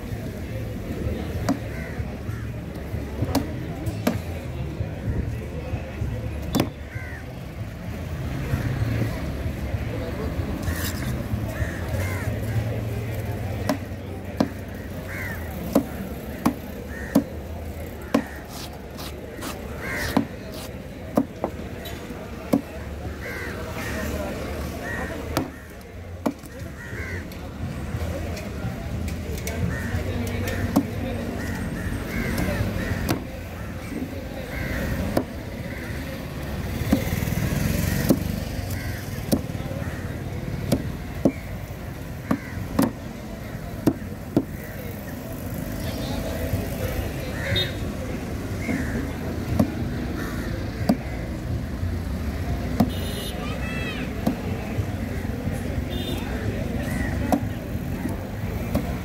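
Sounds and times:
knife chopping on wooden board: 18.1 - 21.6, 42.3 - 43.0.

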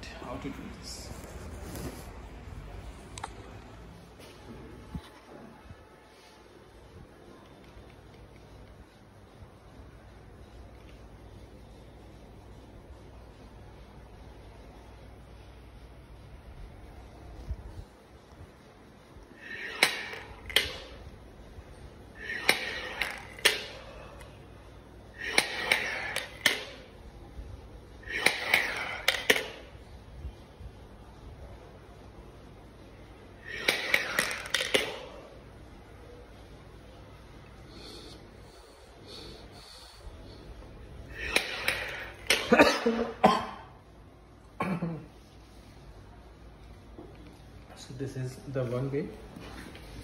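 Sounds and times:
plastic balls clicking in tubes: 22.3 - 23.8, 25.2 - 26.8, 28.1 - 29.8, 33.5 - 35.0
man coughing: 42.3 - 43.7, 44.6 - 45.1.

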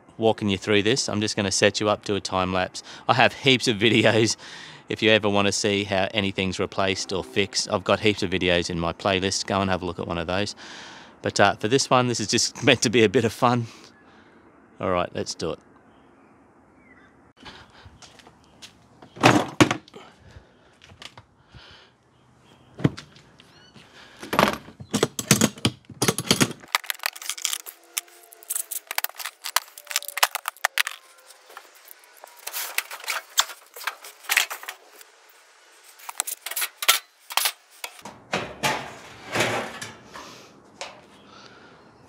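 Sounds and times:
clicks knocks and rattles of parts: 24.2 - 34.8.

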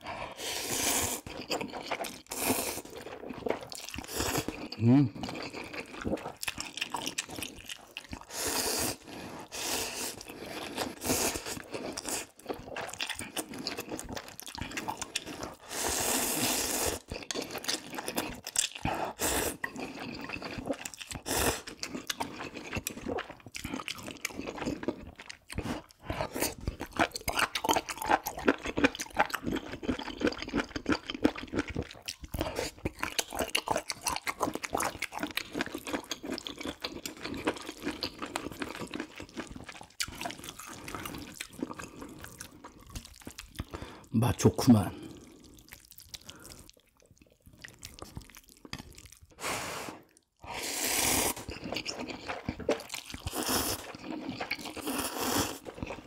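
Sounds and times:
noodle slurping: 0.0 - 14.0, 14.6 - 24.8, 47.6 - 56.0
wet chewing and crunching: 0.0 - 49.4, 50.0 - 56.0.

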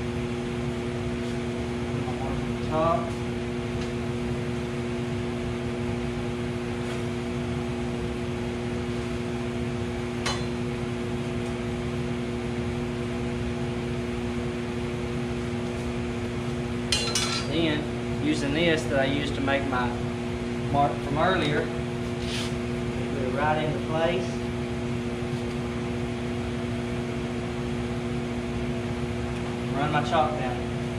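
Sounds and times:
machine hum: 0.0 - 30.9.

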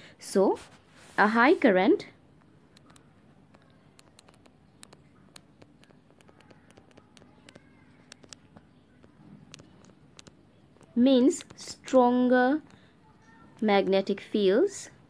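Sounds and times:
stylus tapping on tablet screen: 2.4 - 11.7.

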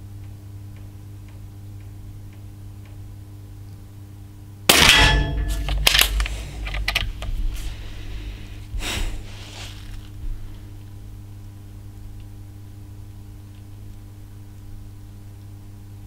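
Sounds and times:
metallic ring: 4.7 - 6.7
air rifle shot: 4.7 - 7.2.

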